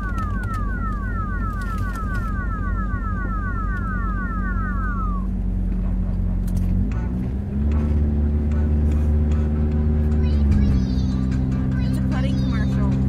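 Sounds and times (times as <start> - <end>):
electronic falling chirps: 0.0 - 5.6
car engine and tyres drone: 0.0 - 13.0.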